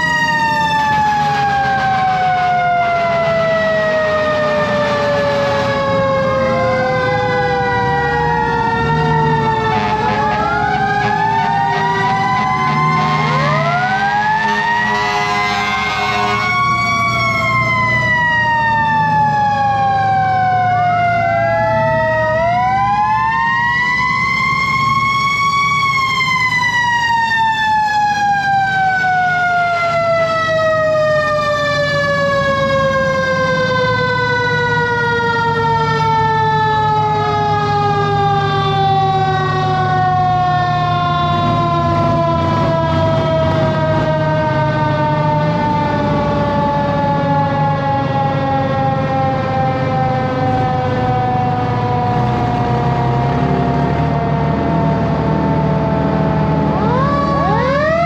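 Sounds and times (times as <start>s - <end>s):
fire engine siren wailing: 0.0s - 58.0s
second siren: 0.0s - 58.0s
diesel engine running: 35.7s - 58.0s.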